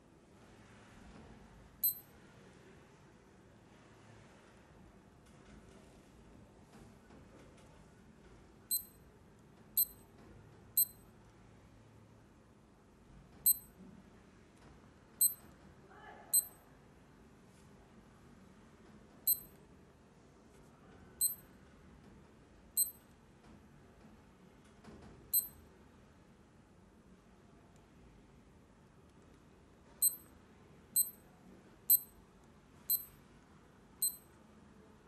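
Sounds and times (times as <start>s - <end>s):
alarm clock key beeps: 1.8s - 2.0s, 8.7s - 9.0s, 9.8s - 10.0s, 10.8s - 11.0s, 13.5s - 13.7s, 16.4s - 16.6s, 19.3s - 19.5s, 21.2s - 21.4s, 22.8s - 23.0s, 25.3s - 25.6s, 30.0s - 30.2s, 31.0s - 31.2s, 32.9s - 33.1s, 34.0s - 34.3s.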